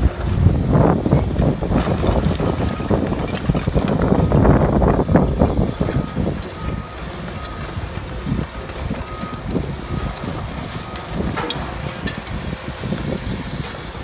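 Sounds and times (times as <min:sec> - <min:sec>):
diesel engine rumble: 0:00.0 - 0:14.0
excavator crunching brick rubble: 0:00.0 - 0:14.0.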